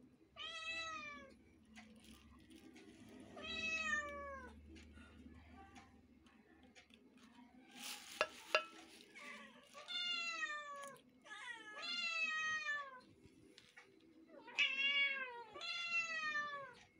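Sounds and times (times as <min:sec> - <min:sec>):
short rustle: 0:07.8 - 0:09.4.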